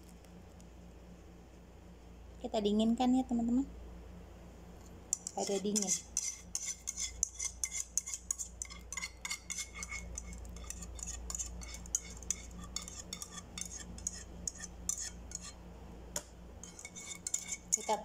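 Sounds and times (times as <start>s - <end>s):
low steady hum: 0.0s - 18.0s
spoon clinking against cookware: 5.1s - 15.5s.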